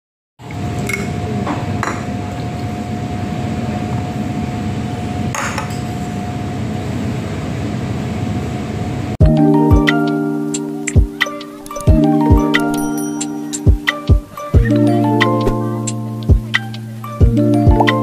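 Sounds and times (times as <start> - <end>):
tableware clinking: 12.6 - 13.6.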